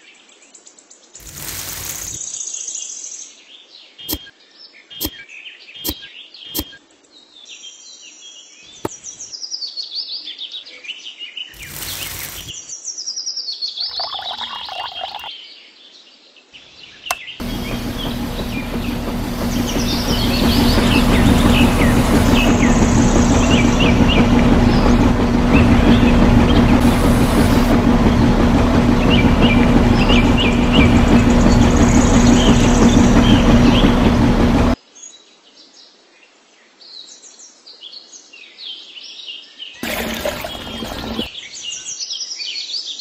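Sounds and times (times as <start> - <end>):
electric motor humming: 1.2 - 2.2, 11.6 - 12.5, 17.4 - 34.8, 39.8 - 41.3
small birds chirping: 16.6 - 28.4.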